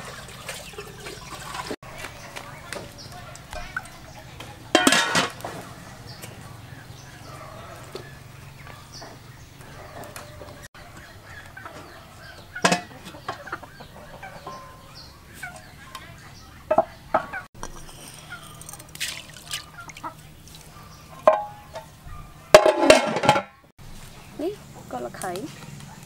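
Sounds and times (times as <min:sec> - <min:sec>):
chickens clucking: 0:00.0 - 0:23.4
cooking pot and lid clanking: 0:04.7 - 0:05.6, 0:12.6 - 0:14.8, 0:21.2 - 0:23.6.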